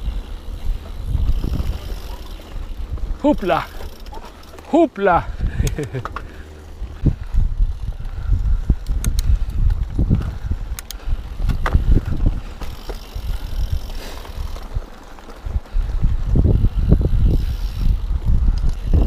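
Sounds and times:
bike knocks and rattles: 0.0s - 7.0s, 11.1s - 19.0s
bike tyres rumbling on dirt: 0.0s - 19.0s.

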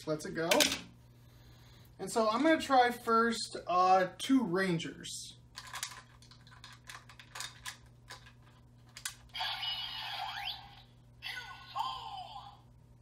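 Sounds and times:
plastic clicks of toy pieces: 5.6s - 8.3s, 8.9s - 9.2s
toy electronic sound effect: 9.3s - 12.6s.

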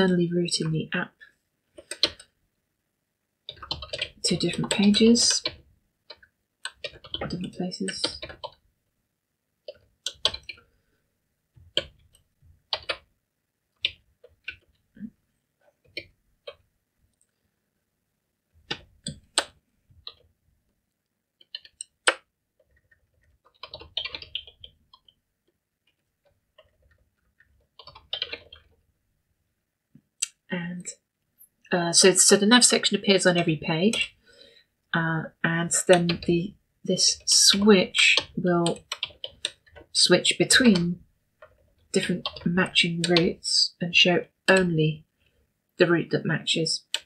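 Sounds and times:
computer keyboard typing: 1.8s - 2.4s, 3.5s - 8.6s, 9.6s - 10.7s, 11.6s - 13.1s, 13.8s - 14.8s, 21.4s - 25.2s, 25.8s - 28.8s, 35.8s - 36.4s, 37.1s - 40.8s, 41.4s - 43.4s, 46.8s - 47.0s.

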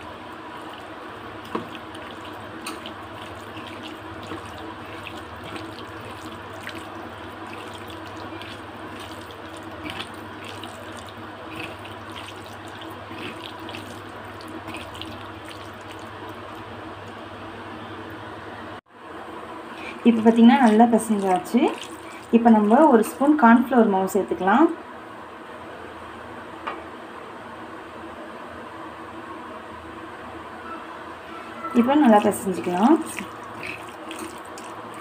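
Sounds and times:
hand squishing wet meat: 0.0s - 16.7s, 20.6s - 22.7s, 32.1s - 35.0s.

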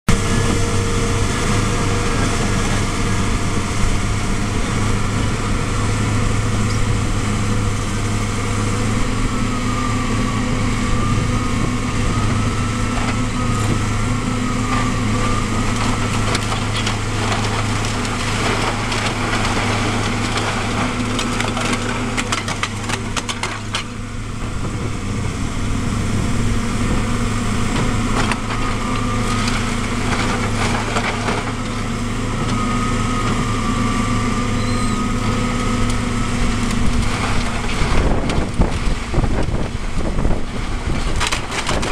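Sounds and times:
excavator diesel engine: 0.1s - 41.9s
roof tiles and timbers crunching: 11.6s - 33.9s, 35.1s - 41.9s
high wavering whine: 32.5s - 36.7s.

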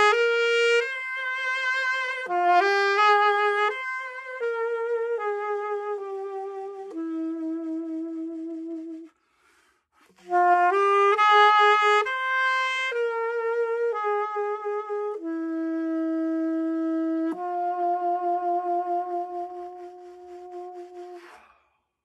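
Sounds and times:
alto saxophone melody: 0.0s - 21.5s.

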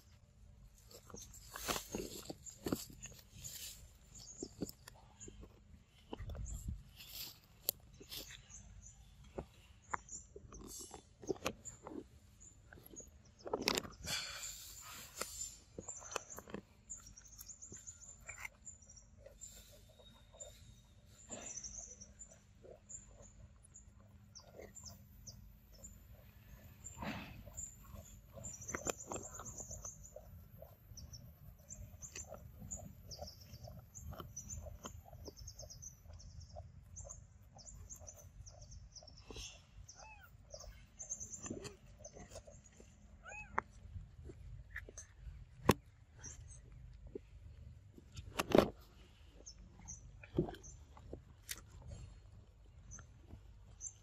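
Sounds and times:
high chirping calls: 26.8s - 42.6s.

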